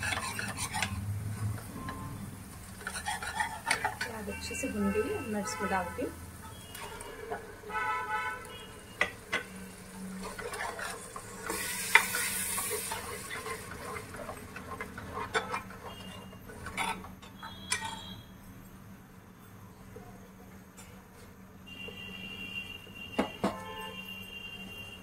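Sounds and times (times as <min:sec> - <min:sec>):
spatula scraping and knocking pan: 0:00.0 - 0:02.0, 0:02.7 - 0:05.0, 0:09.0 - 0:18.1
spices sizzling in oil: 0:02.4 - 0:07.6, 0:08.5 - 0:17.7.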